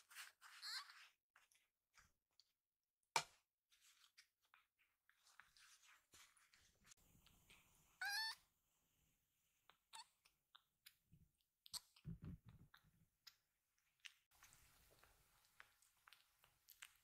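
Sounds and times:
kittens rustling on a mat: 0:03.7 - 0:07.6.

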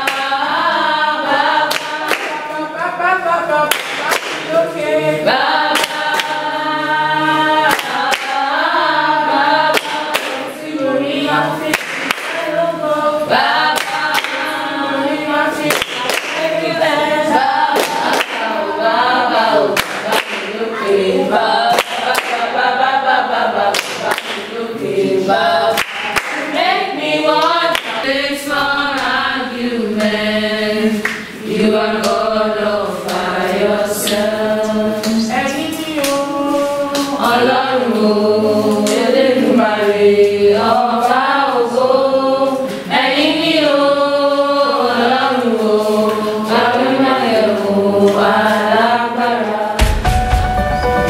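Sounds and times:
hand claps: 0:00.0 - 0:00.4, 0:01.6 - 0:02.6, 0:03.7 - 0:04.6, 0:05.6 - 0:06.5, 0:07.6 - 0:08.6, 0:09.6 - 0:10.5, 0:11.6 - 0:12.5, 0:13.6 - 0:14.7, 0:15.6 - 0:16.5, 0:17.7 - 0:18.5, 0:19.8 - 0:20.6, 0:21.6 - 0:22.5, 0:23.6 - 0:24.5, 0:25.7 - 0:26.6, 0:27.3 - 0:28.1, 0:31.0 - 0:31.3, 0:32.0 - 0:32.2, 0:33.0 - 0:34.3, 0:35.0 - 0:36.3, 0:36.9 - 0:37.6
group singing a worship song: 0:00.0 - 0:51.0.

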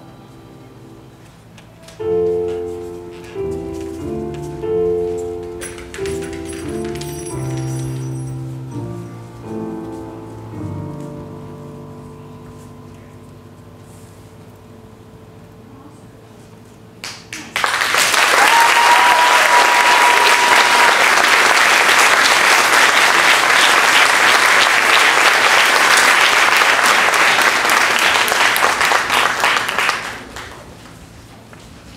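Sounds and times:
audience applause: 0:17.0 - 0:30.8.

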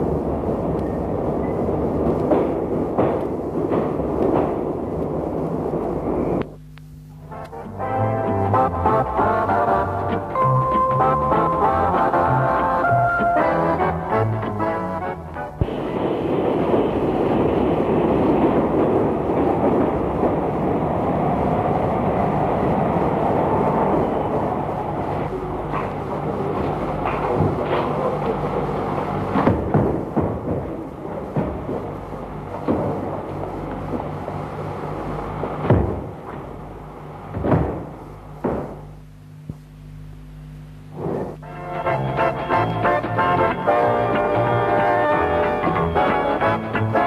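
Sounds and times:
heavy bangs: 0:00.0 - 0:06.4, 0:07.3 - 0:34.4, 0:35.3 - 0:39.0
train rumbling on rails: 0:00.0 - 0:06.4, 0:07.3 - 0:37.9, 0:41.3 - 0:47.0
faint whine: 0:00.0 - 0:47.0
steady low hum: 0:00.0 - 0:47.0.

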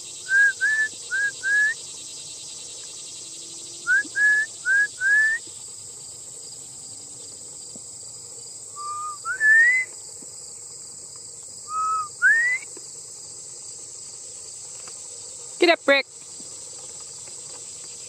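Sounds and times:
high insect drone: 0:00.0 - 0:18.0
sheepdog whistle commands: 0:11.7 - 0:12.6.

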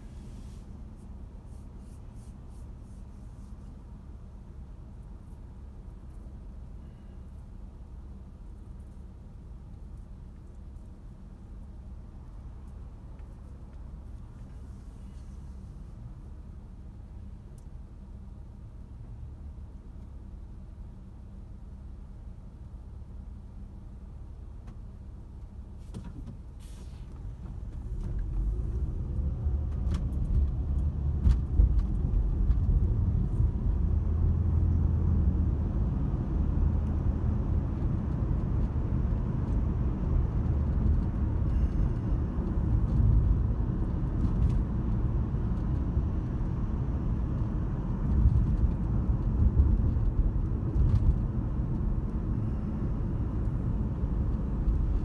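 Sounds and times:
car engine and tyre rumble: 0:00.0 - 0:55.0.

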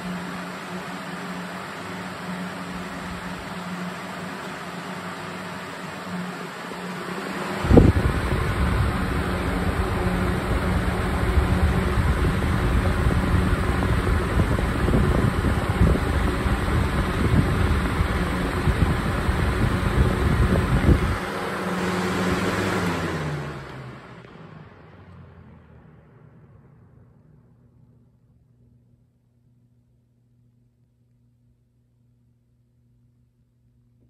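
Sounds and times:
airflow buffeting microphone: 0:00.0 - 0:24.4
box fan running: 0:00.0 - 0:32.2.

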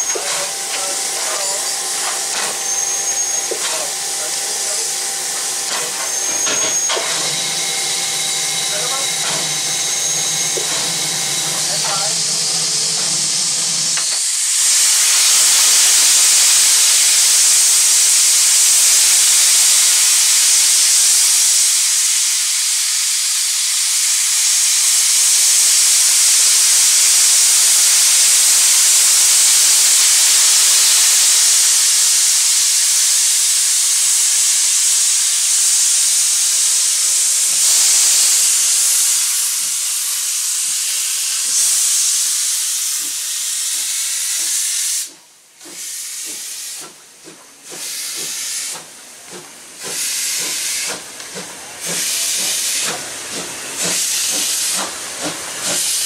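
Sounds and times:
steam locomotive venting steam: 0:00.0 - 0:56.0.

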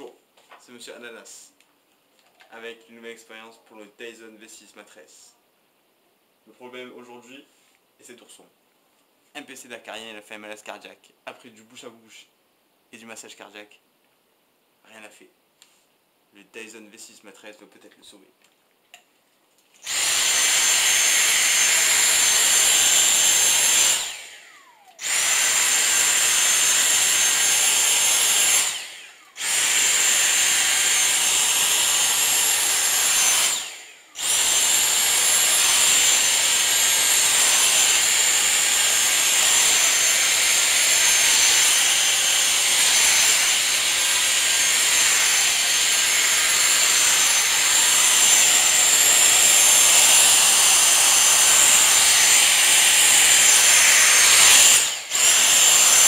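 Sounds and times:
handheld vacuum whining: 0:19.8 - 0:56.0.

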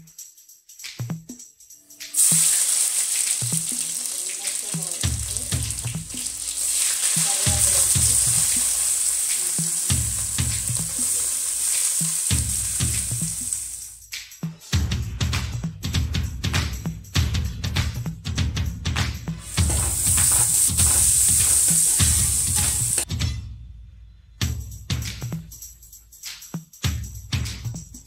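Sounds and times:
background music with steady beat: 0:00.0 - 0:28.0
seeds sizzling in hot oil: 0:02.1 - 0:14.0, 0:19.4 - 0:23.1.

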